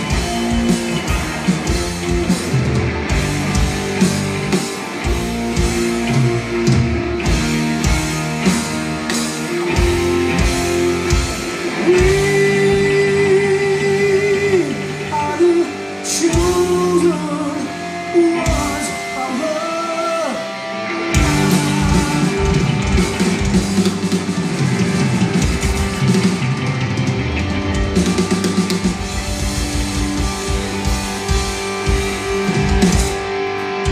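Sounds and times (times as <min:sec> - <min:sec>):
drums: 0:00.0 - 0:33.9
electric guitars: 0:00.0 - 0:33.9
person singing: 0:11.1 - 0:23.5.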